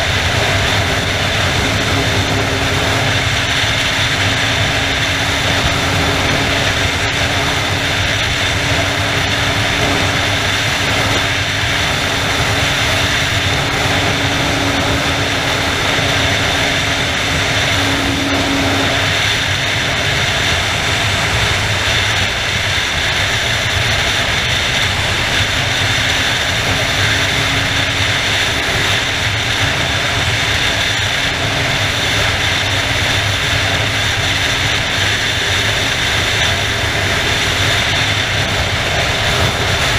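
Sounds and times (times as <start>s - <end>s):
faint motorcycle engine drone: 0.0s - 39.9s
wind and road noise: 0.0s - 39.9s.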